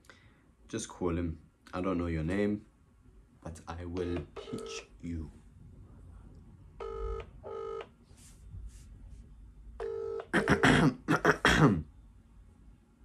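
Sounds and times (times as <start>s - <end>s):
telephone ringback tone: 6.8s - 7.8s, 9.8s - 10.2s
man clearing his throat: 10.3s - 11.9s.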